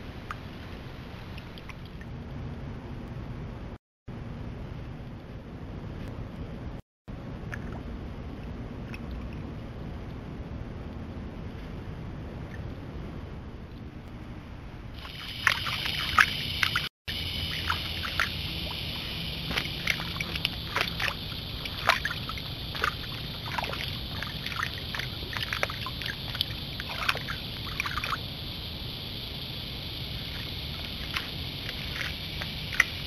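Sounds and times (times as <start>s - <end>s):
deer stepping through water: 15.0s - 28.2s, 30.2s - 33.0s
night insects chorus: 15.0s - 33.0s.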